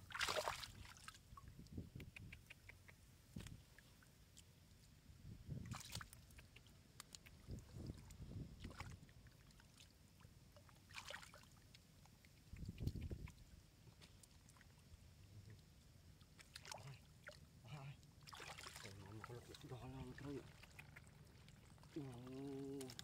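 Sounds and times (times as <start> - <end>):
small water splashes: 0.0 - 1.7, 5.6 - 23.0
hands sloshing in mud: 0.1 - 1.2, 10.8 - 11.5, 18.2 - 23.0.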